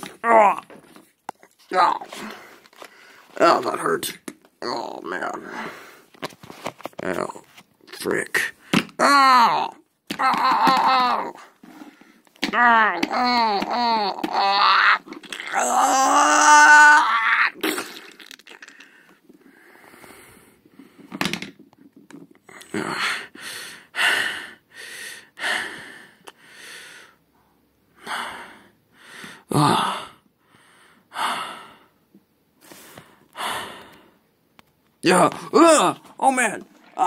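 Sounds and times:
person crying out in strain: 9.0 - 11.5, 12.4 - 17.9.

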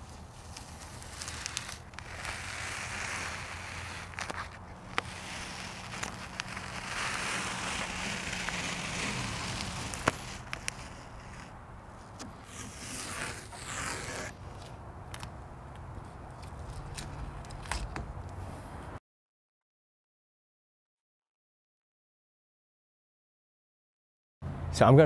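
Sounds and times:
masking tape peeling off: 0.0 - 15.4, 16.0 - 18.3.

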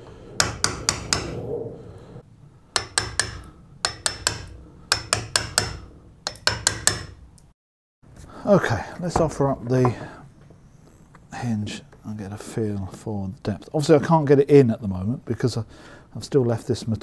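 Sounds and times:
hammer tapping a wood chisel: 0.4 - 1.3, 2.7 - 7.2.

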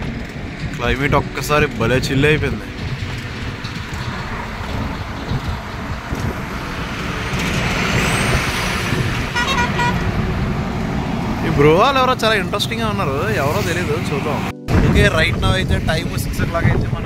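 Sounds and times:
wind noise: 0.0 - 11.5, 14.4 - 17.0
motorcycle road rumble: 0.0 - 17.0
vehicle horn toot: 9.3 - 10.1.

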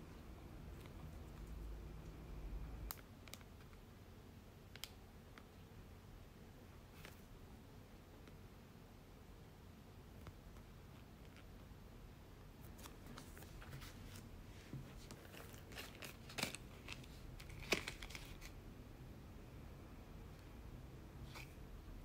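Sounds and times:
plastic packaging crinkling: 15.0 - 18.6.

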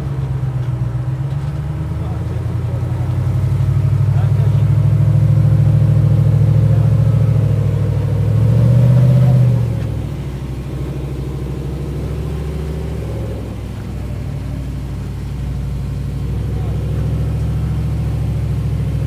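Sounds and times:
car engine working under load: 0.0 - 19.0.

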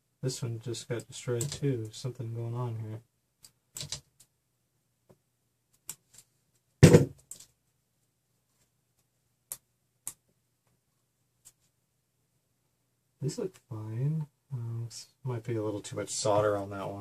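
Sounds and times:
thump: 6.8 - 7.2.

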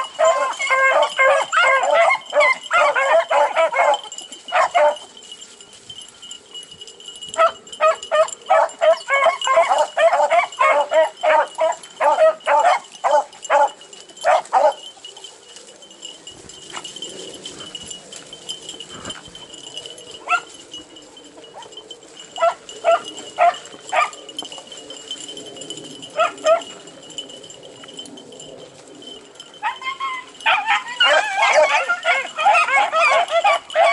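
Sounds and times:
dogs barking: 0.0 - 5.1, 7.3 - 15.3, 16.8 - 20.6, 21.4 - 26.8, 29.4 - 33.9.

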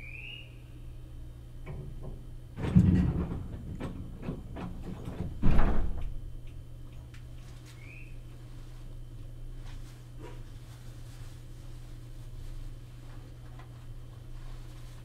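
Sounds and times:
train car low hum: 0.0 - 15.0
loud rattling clatters: 1.7 - 6.2.

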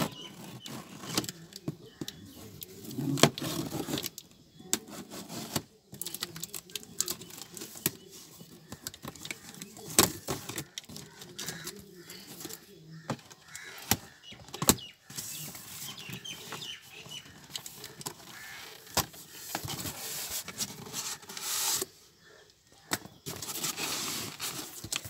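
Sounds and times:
cardboard flaps scraping and rustling: 0.0 - 4.2, 4.8 - 22.0, 23.2 - 25.0
cardboard clicks and knocks: 8.6 - 21.9.

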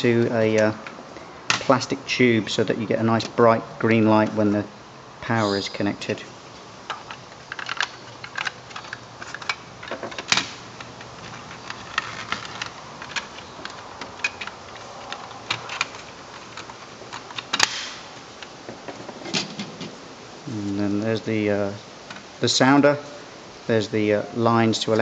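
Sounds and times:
plastic parts clicking: 6.9 - 19.9.

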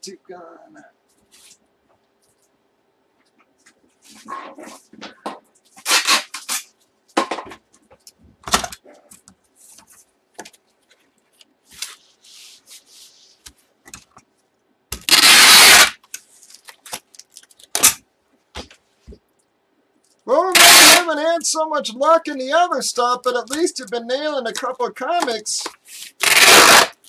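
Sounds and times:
packing tape ripping from tape gun: 5.8 - 6.8, 15.0 - 18.0, 20.6 - 21.1, 26.2 - 27.0.

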